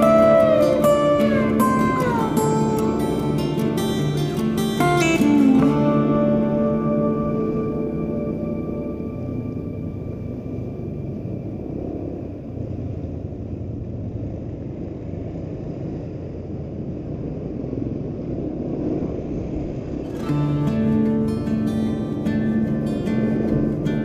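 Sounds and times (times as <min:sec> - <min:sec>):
guitar music: 0:00.0 - 0:12.1, 0:20.0 - 0:24.0
motorcycle engine rumble: 0:00.0 - 0:24.0.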